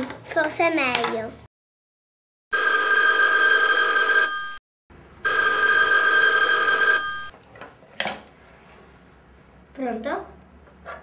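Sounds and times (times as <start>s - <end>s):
telephone bell ringing: 2.5s - 4.6s, 5.2s - 7.3s.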